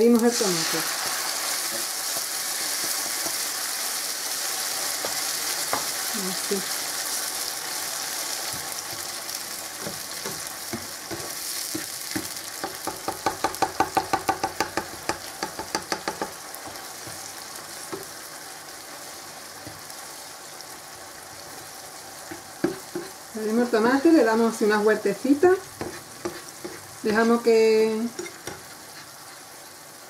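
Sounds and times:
tomato sizzling in hot oil: 0:00.0 - 0:30.0
spatula striking a pan: 0:01.6 - 0:03.5, 0:05.0 - 0:06.0, 0:09.8 - 0:18.2, 0:22.2 - 0:23.2, 0:25.8 - 0:27.3, 0:28.1 - 0:28.8.

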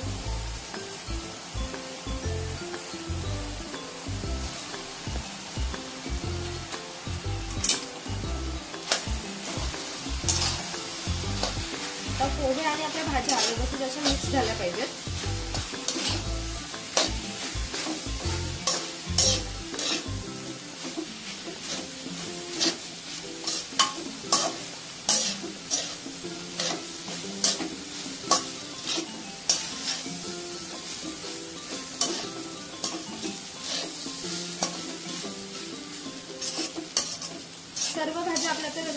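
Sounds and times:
pan sizzling: 0:00.0 - 0:38.9
metal spatula scraping a pan: 0:08.8 - 0:38.9.

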